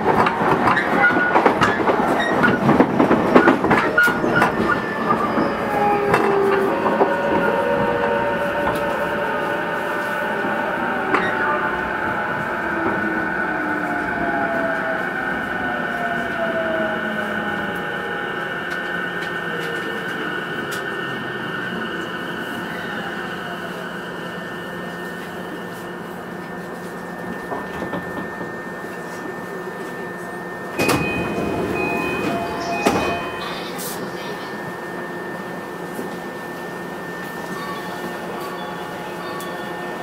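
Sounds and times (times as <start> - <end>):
train doors opening: 0.0 - 24.4, 25.0 - 34.6
electric train whine: 0.0 - 40.0
chime tones: 30.8 - 33.9.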